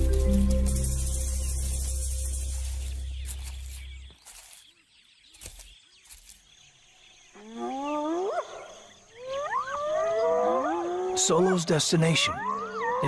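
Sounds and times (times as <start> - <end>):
background music: 0.0 - 3.4
wild dogs whining cries: 12.3 - 13.0.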